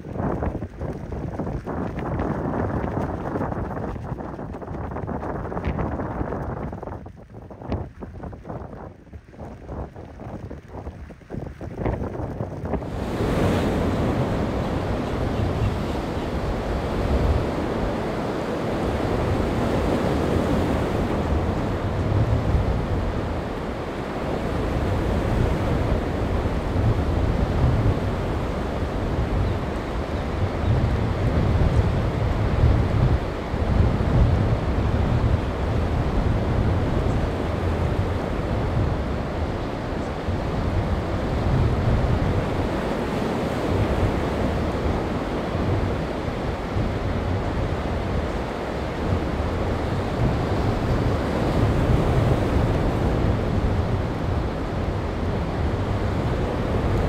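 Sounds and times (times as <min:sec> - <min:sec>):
wind buffeting microphone: 0:00.0 - 0:57.0
waves rushing: 0:12.6 - 0:57.0.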